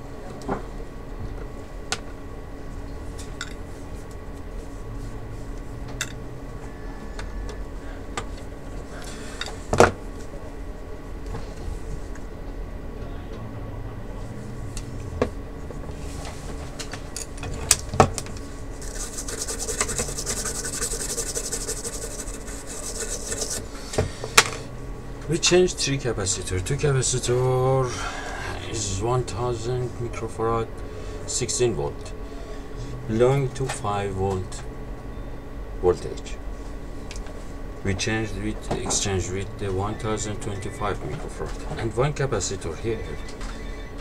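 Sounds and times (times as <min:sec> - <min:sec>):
gloved hands rubbing circuit board: 0:18.8 - 0:23.8.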